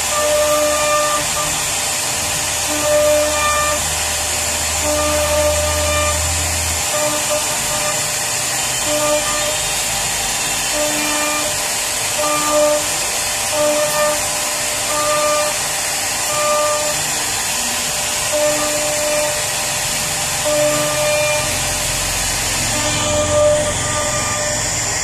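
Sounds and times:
router spindle whine: 0.0 - 25.0
wood cutting hiss: 0.0 - 25.0
short pitched machine hums: 2.4 - 25.0.

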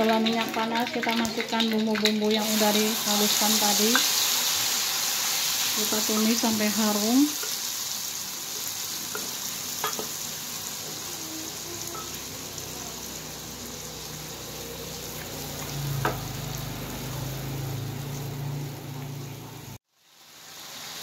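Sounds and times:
spice paste sizzling in oil: 0.0 - 21.0
spatula tapping a wok: 9.1 - 10.2.

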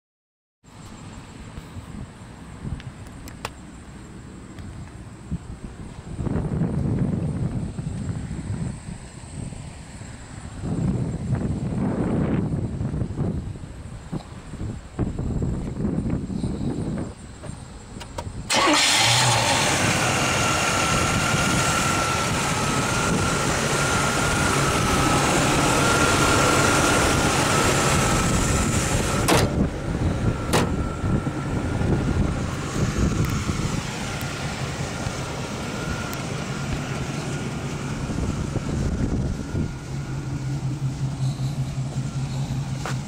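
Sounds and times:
car engine idling: 0.8 - 43.0
thin high whine: 30.0 - 43.0.

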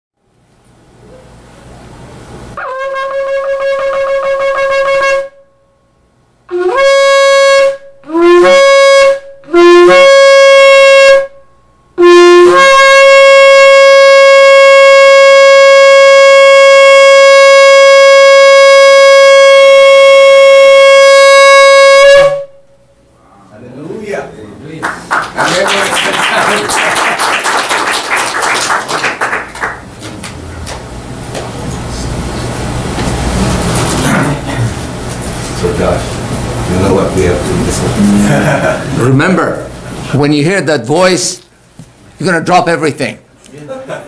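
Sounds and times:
ram's-horn trumpet blasts: 2.6 - 5.6, 6.5 - 22.6.

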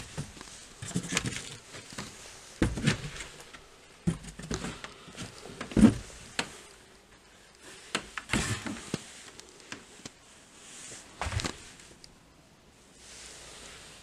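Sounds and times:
light scuffs: 10.8 - 11.9.

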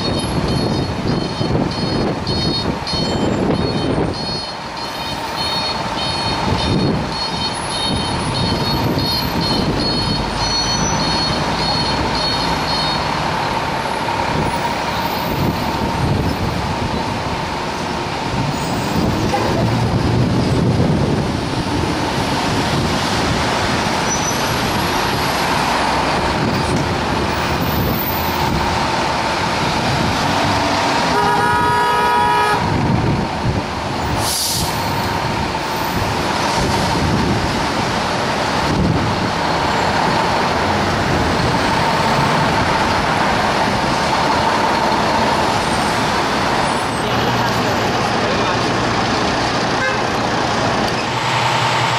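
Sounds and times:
fire engine diesel rumble: 0.0 - 51.9
passing cars: 0.0 - 51.9
air horn blast: 31.1 - 32.7, 49.8 - 50.1.

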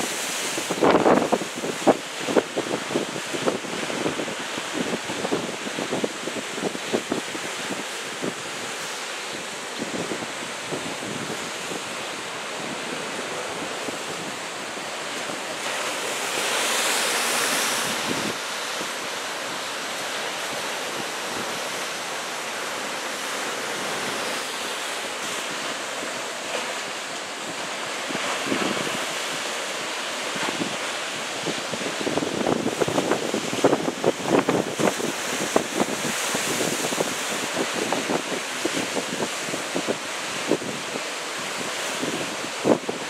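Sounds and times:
wind buffeting microphone: 0.0 - 19.8, 30.4 - 43.0
waves breaking over rocks: 0.0 - 43.0.

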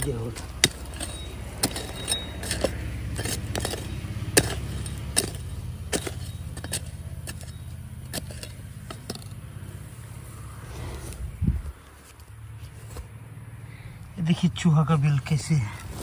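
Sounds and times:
sharp clinks: 0.0 - 9.4.

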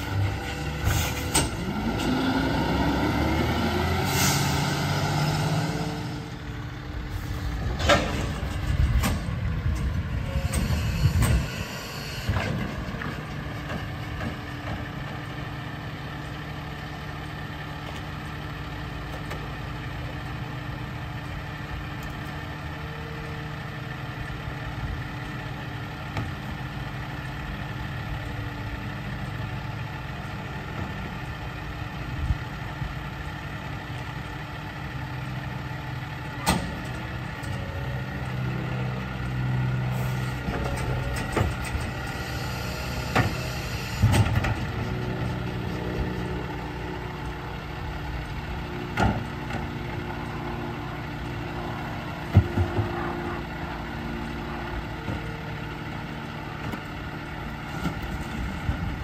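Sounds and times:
garbage truck diesel engine: 0.0 - 59.0
air brake hiss: 0.8 - 1.4, 4.0 - 4.6.

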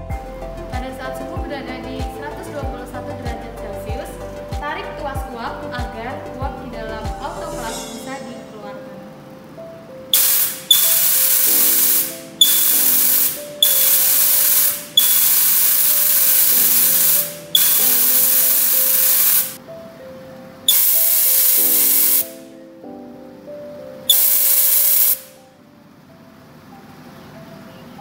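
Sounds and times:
steam hissing from valve: 10.1 - 19.6, 20.7 - 22.4, 24.1 - 25.3
valve click: 10.2 - 19.6, 20.7 - 22.4, 24.1 - 25.3.

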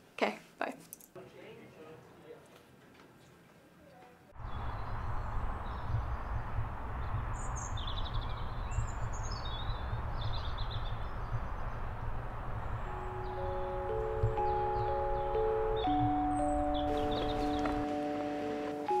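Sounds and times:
steady low rumble: 4.4 - 16.2
bird chirps: 4.4 - 18.1.

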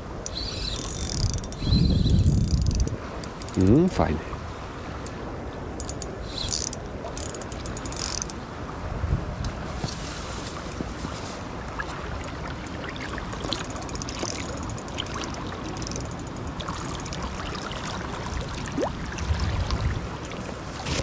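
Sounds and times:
faint clicks: 0.2 - 3.6, 12.2 - 17.4.

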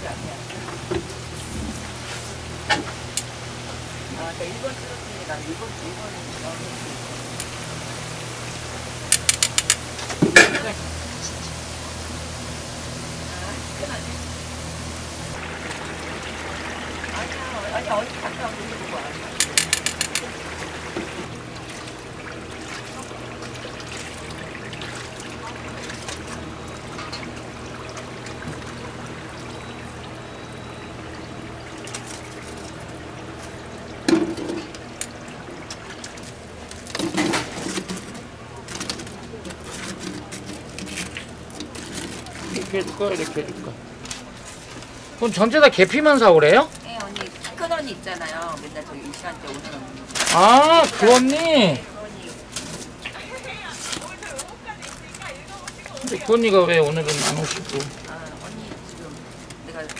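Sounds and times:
dough deep-frying in oil: 0.0 - 59.9
metal tongs clicking on fryer: 9.1 - 10.6, 19.4 - 20.3
tongs clanking: 9.1 - 10.7, 19.4 - 20.3.

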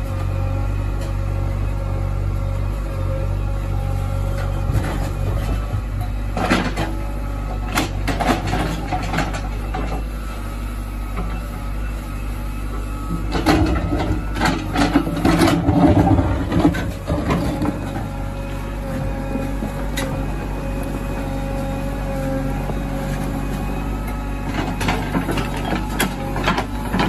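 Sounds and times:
diesel engine running: 0.0 - 27.0
bucket scraping stony soil: 14.9 - 18.1.

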